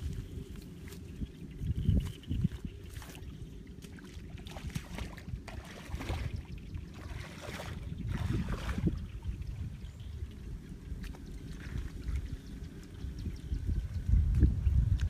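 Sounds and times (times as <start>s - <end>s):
rustling or splashing: 0.0s - 9.1s
wind buffeting microphone: 0.0s - 15.0s.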